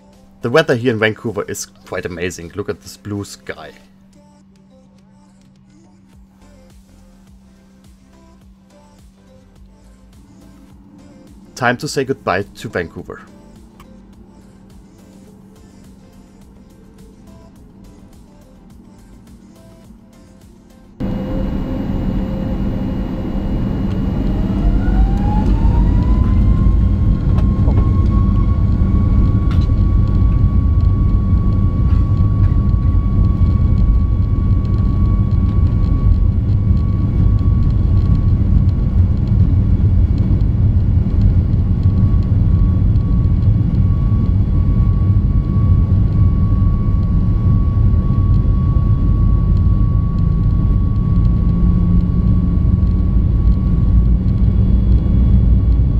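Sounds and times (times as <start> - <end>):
jet engines whining: 0.0 - 4.1, 10.0 - 55.9
jet engine roar: 10.6 - 13.7, 21.0 - 55.9.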